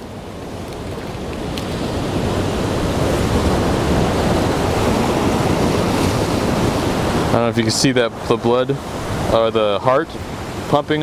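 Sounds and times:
surf breaking against rocks: 0.0s - 11.0s.

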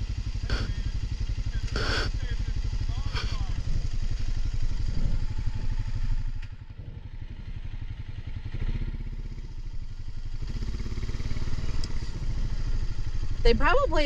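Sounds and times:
atv engine running: 0.0s - 14.0s.

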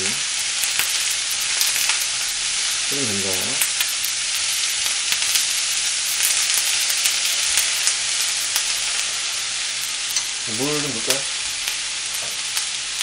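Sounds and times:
vegetables sizzling in a pan: 0.0s - 13.0s
chopsticks clicking against pan: 9.7s - 10.3s.

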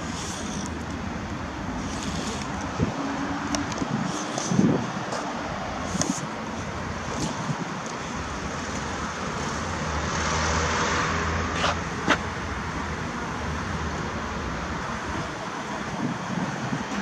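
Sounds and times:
steady hum of traffic: 0.0s - 17.0s
vehicle passing: 1.7s - 13.9s.

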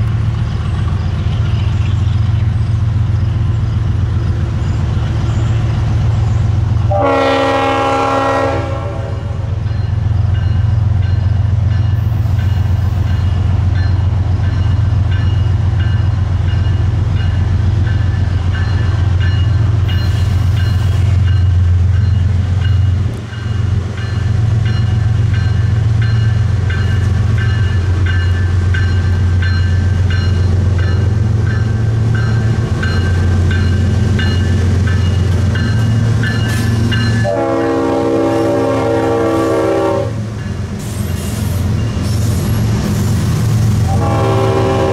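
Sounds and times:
diesel locomotive passing: 0.0s - 44.9s
train rolling: 0.0s - 44.9s
train air horn chord: 6.9s - 9.5s, 37.2s - 40.2s, 43.9s - 44.9s.

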